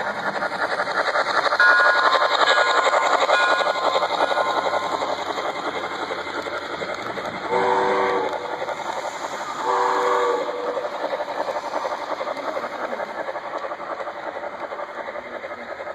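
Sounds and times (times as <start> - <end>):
model train wheels clicking on track: 0.0 - 15.9
steam locomotive whistle: 7.4 - 8.6, 9.5 - 10.8.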